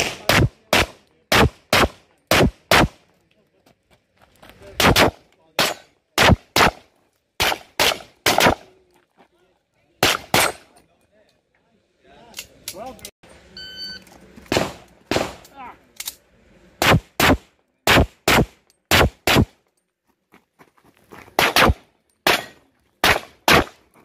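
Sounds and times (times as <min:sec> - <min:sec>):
pistol shots: 0:00.0 - 0:03.0, 0:04.8 - 0:08.7, 0:10.0 - 0:10.7, 0:14.5 - 0:15.5, 0:16.8 - 0:19.6, 0:21.4 - 0:23.8.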